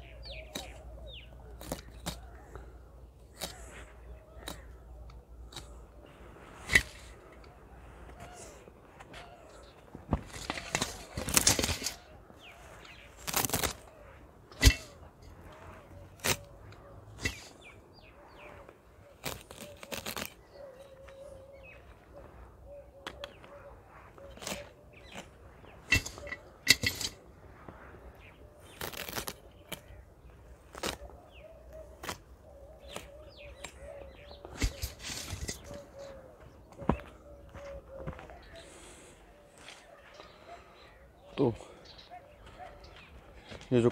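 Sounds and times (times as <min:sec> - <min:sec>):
faint birds chirping: 0:00.0 - 0:43.9
knife snapping carrot stems: 0:03.3 - 0:03.7, 0:13.2 - 0:13.8, 0:28.7 - 0:29.9
leafy rustling and swishing: 0:10.2 - 0:20.4, 0:23.8 - 0:31.1.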